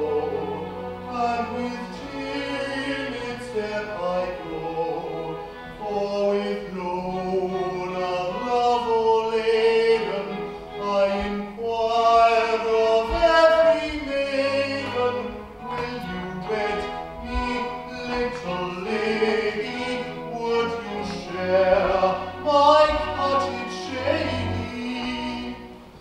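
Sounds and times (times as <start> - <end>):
operatic singing: 0.0 - 26.0
orchestral accompaniment: 0.0 - 26.0.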